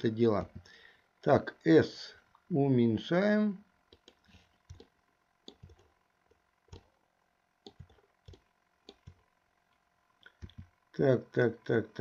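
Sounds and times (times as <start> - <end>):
faint mouse clicks: 3.9 - 4.9, 7.6 - 10.7.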